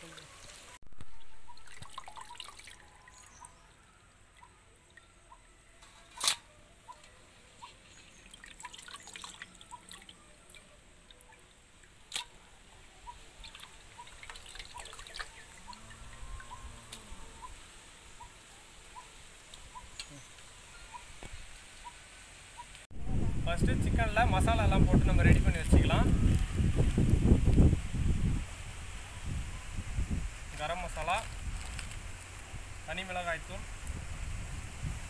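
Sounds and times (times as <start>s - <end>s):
water dripping and trickling: 0.0s - 5.4s, 7.7s - 22.0s.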